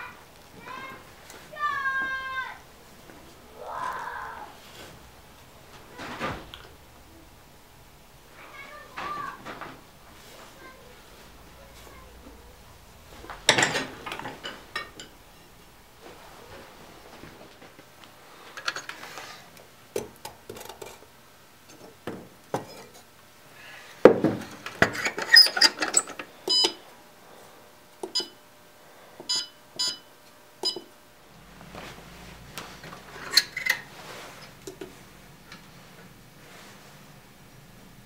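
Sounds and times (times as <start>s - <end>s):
low steady hum: 0.0s - 38.0s
clicks and metal clatter: 13.3s - 15.2s.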